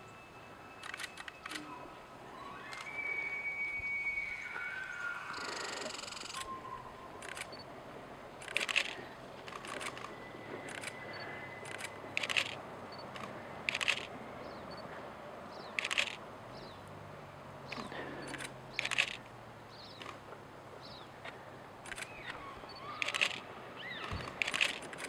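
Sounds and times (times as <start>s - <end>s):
camera shutter clicks in bursts: 0.8s - 1.6s, 7.2s - 7.7s, 8.4s - 10.1s, 10.7s - 11.0s, 11.6s - 14.1s, 15.8s - 16.2s, 17.7s - 19.2s, 21.8s - 23.5s, 24.2s - 25.0s
animals splashing in river: 20.0s - 25.0s.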